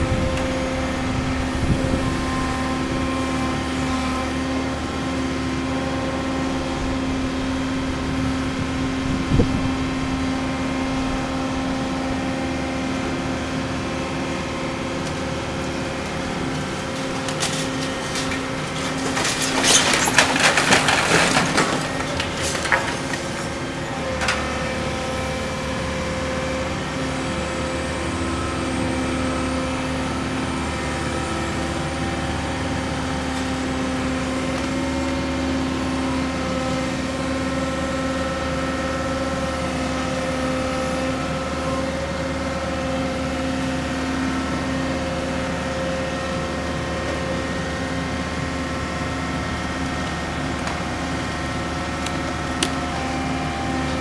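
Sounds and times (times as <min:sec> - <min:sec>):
excavator diesel engine running: 0:00.0 - 0:54.0
debris crashing and crumbling: 0:15.2 - 0:24.6.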